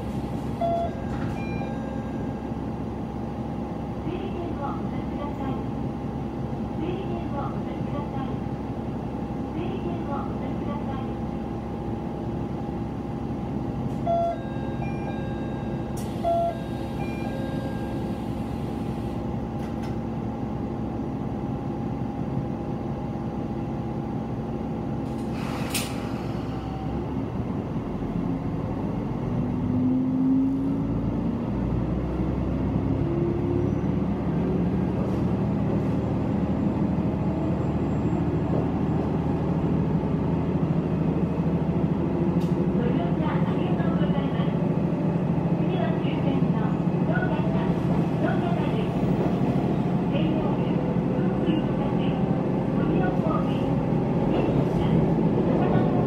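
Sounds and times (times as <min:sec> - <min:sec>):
short electronic beeps: 0:00.6 - 0:01.9, 0:14.1 - 0:18.0
hiss of air: 0:25.3 - 0:26.5
diesel engine idling and revving: 0:26.0 - 0:56.0.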